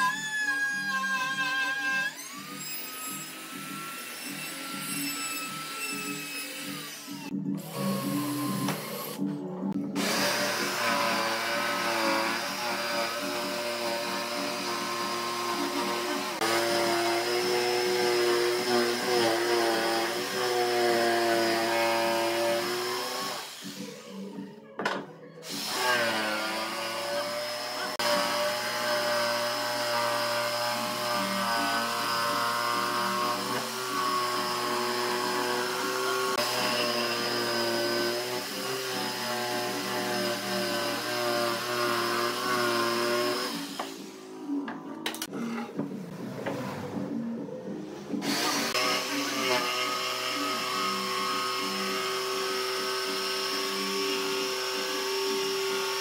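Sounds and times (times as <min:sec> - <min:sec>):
jigsaw cutting wood: 0:09.9 - 0:24.0, 0:25.5 - 0:44.1, 0:48.2 - 0:56.0.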